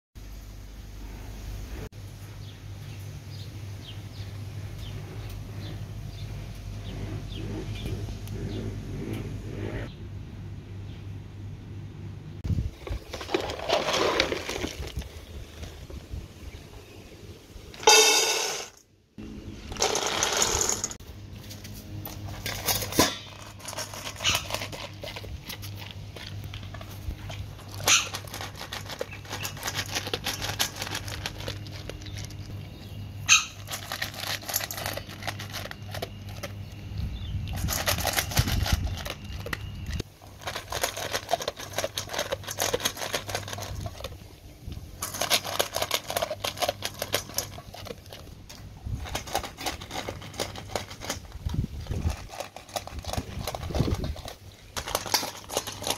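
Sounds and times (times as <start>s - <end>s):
dog crunching kibble: 12.7s - 15.8s, 19.8s - 21.0s, 21.8s - 55.9s
kibble rattling into metal bowl: 12.7s - 15.8s, 17.8s - 18.8s, 19.7s - 21.0s, 22.1s - 32.6s, 33.3s - 36.8s, 37.4s - 44.2s, 45.0s - 55.9s.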